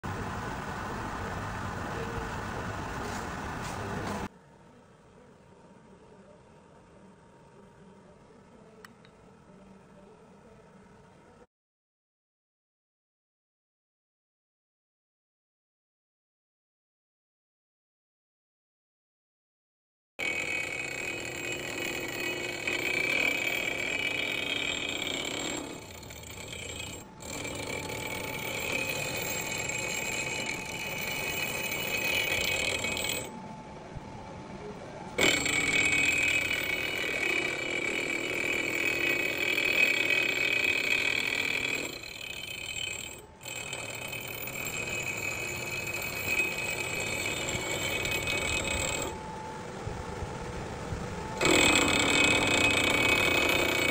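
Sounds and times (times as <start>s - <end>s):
milling machine cutting steel: 20.2s - 33.4s, 35.1s - 49.4s, 51.2s - 53.9s.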